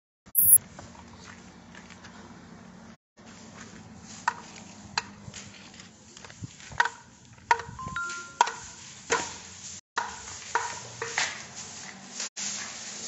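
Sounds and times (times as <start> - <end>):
two-note electronic beep: 0.4 - 0.6, 7.8 - 8.5.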